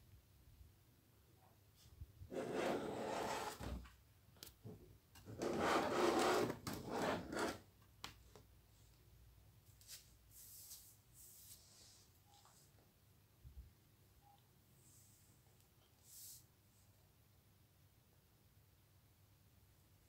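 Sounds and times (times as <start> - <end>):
rubbing scraping noise: 2.3 - 3.8, 5.4 - 7.6.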